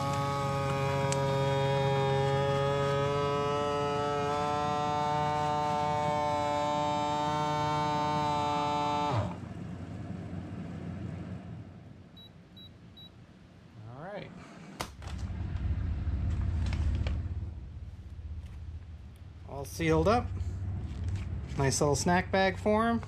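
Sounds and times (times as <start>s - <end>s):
vacuum sealer pump humming: 0.0s - 10.4s.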